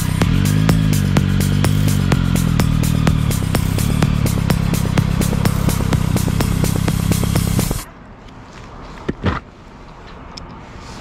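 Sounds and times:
motorcycle engine idling: 0.0s - 7.9s.

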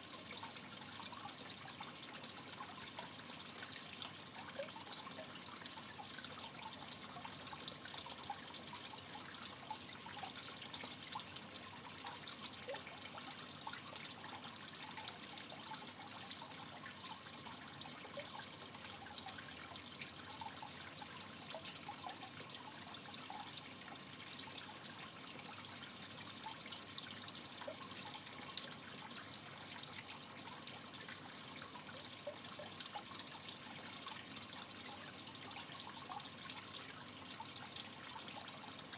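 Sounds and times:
aquarium water trickling: 0.0s - 38.9s.

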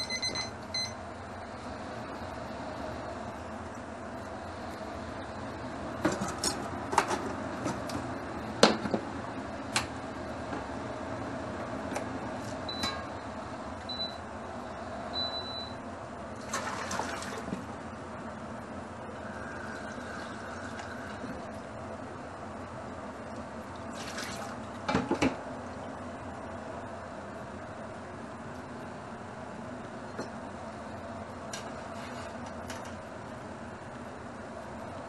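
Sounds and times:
short beeps: 0.0s - 1.0s
steady hum: 0.0s - 35.0s.

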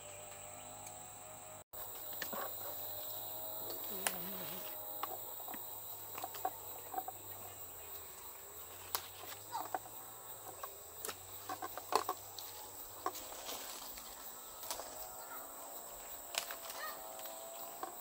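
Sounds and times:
leaves snapping and rustling: 3.7s - 4.8s, 8.8s - 9.5s, 11.0s - 15.2s, 16.1s - 17.7s.

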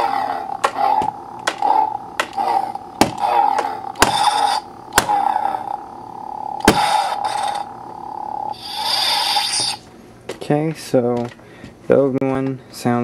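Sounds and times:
hissing swing sounds: 0.0s - 9.9s
lightsaber clash effects: 0.0s - 9.9s
toy lightsaber electronic hum: 0.0s - 9.9s.

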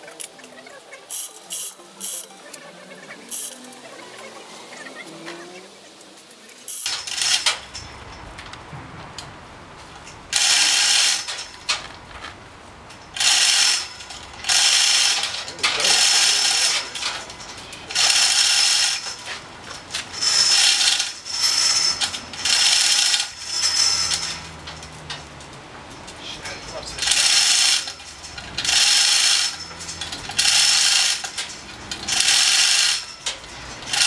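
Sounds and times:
ratchet clicking: 1.1s - 2.3s, 3.3s - 3.6s, 6.5s - 8.3s, 10.3s - 11.9s, 13.1s - 25.2s, 27.0s - 34.0s.

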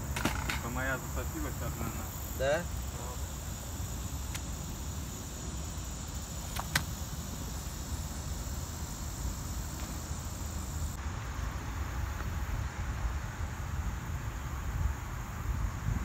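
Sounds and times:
insects trilling: 0.0s - 16.0s
sharp clicks: 4.3s - 4.5s, 6.5s - 7.0s
wind rumbling on microphone: 10.9s - 16.0s.

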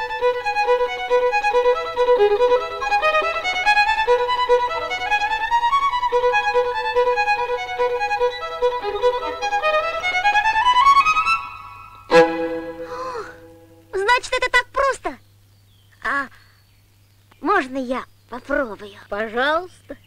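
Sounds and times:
solo violin melody: 0.0s - 13.9s.

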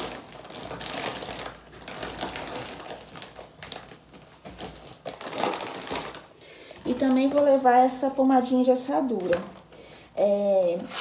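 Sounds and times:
plastic packaging rustling: 0.0s - 8.2s.

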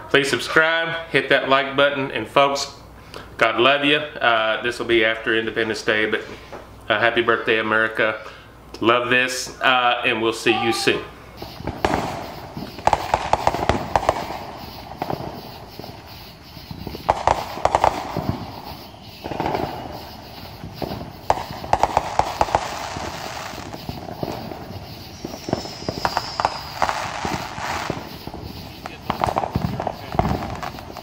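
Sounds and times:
fireworks crackling pops: 4.6s - 31.0s
firework whistle: 10.4s - 31.0s.

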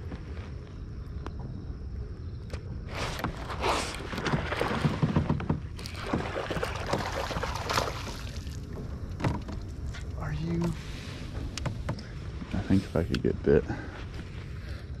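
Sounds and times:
rustling and knocks in kayak: 2.5s - 13.2s
water splashing: 2.9s - 9.9s.

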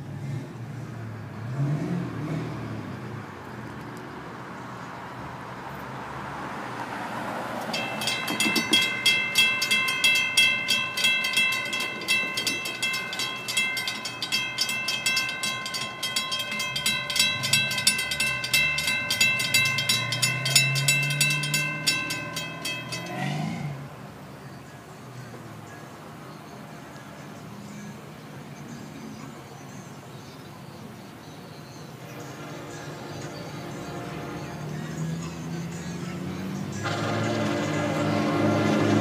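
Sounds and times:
crossing warning bell ringing: 7.4s - 24.3s, 31.2s - 39.0s.

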